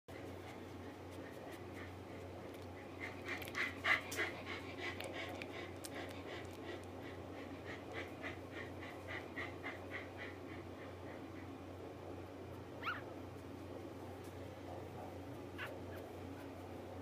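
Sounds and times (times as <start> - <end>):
puppy squeaking: 12.8 - 13.1, 15.6 - 16.1.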